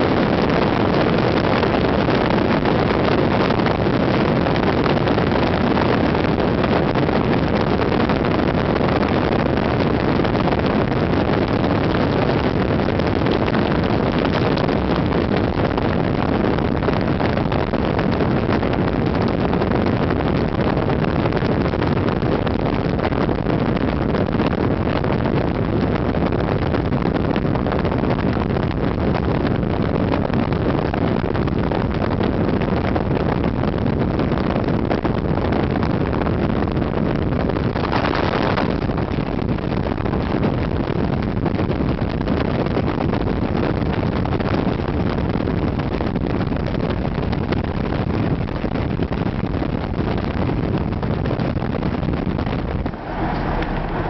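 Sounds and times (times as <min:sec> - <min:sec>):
wind rushing on microphone: 0:00.0 - 0:54.0
car engine drone: 0:52.5 - 0:54.0
road noise: 0:52.5 - 0:54.0.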